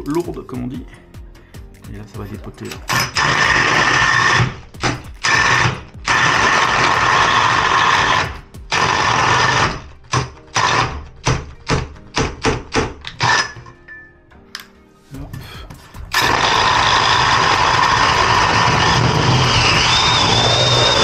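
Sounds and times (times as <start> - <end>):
power drill boring through wood: 2.9 - 11.4, 13.0 - 13.6, 16.1 - 21.0.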